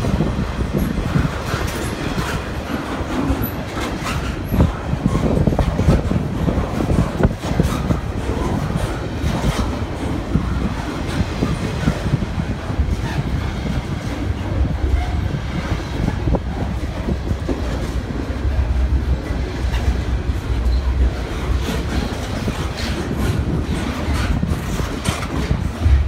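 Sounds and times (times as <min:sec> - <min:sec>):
freight train rolling past: 0:00.0 - 0:26.0
wheels clicking and clacking: 0:00.0 - 0:26.0.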